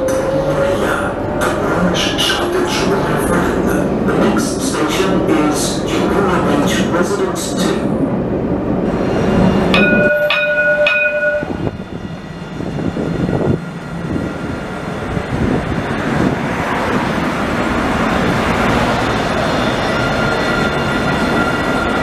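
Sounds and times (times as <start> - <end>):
low rumble inside tram: 0.0 - 22.0
tram rolling past: 0.0 - 22.0
tram chime ringing: 9.4 - 15.1, 17.7 - 22.0.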